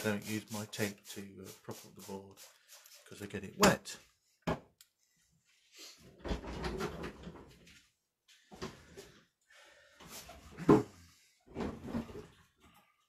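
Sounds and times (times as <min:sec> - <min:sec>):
objects rustling and bumping: 0:06.0 - 0:09.2, 0:10.0 - 0:12.9.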